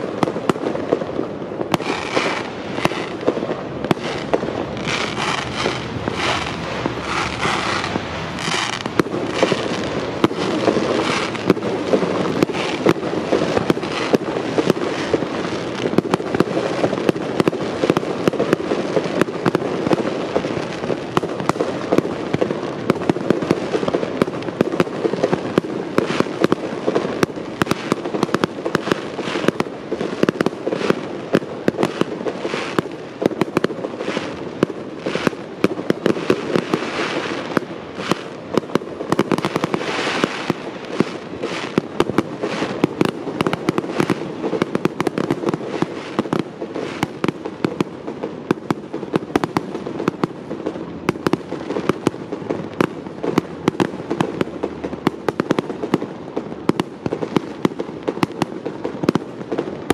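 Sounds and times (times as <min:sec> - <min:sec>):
firework bursts and crackles: 0:00.0 - 0:59.9.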